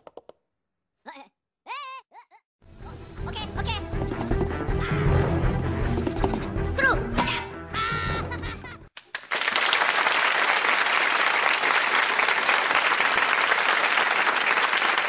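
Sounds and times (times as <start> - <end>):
crowd applauding: 9.0 - 15.0.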